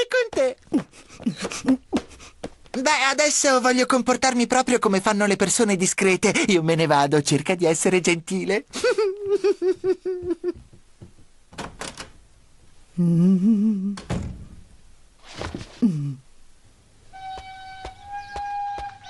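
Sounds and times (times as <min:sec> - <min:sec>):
bird chirps: 0:17.1 - 0:19.0.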